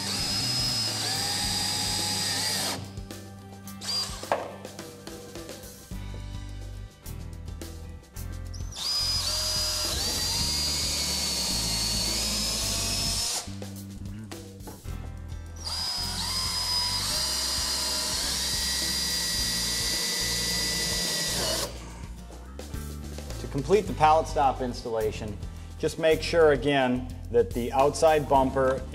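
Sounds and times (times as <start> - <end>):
cordless drill whining: 0.0 - 3.0, 3.8 - 4.4, 8.6 - 13.5, 15.6 - 21.8
background music: 0.0 - 28.9.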